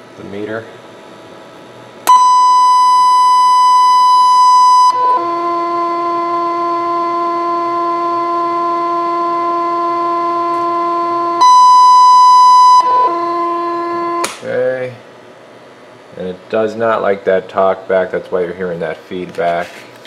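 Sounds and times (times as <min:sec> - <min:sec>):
high-pitched radio feedback tone: 0:02.1 - 0:14.3.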